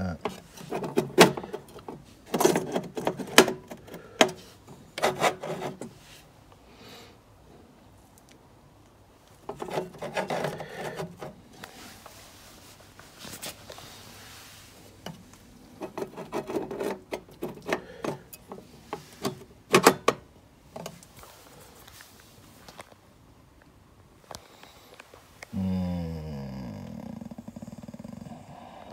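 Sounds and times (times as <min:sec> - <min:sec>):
modules scraping on metal plate: 0:00.2 - 0:06.2, 0:09.4 - 0:11.7, 0:15.7 - 0:20.1.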